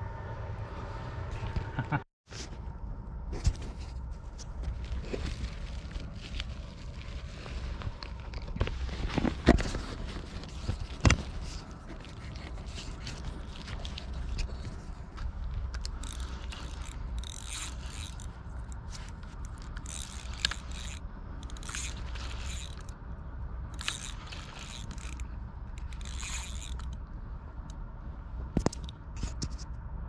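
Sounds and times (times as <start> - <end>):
steady low rumble: 0.0 - 30.0
fishing reel ratcheting: 15.7 - 23.0, 23.7 - 27.0.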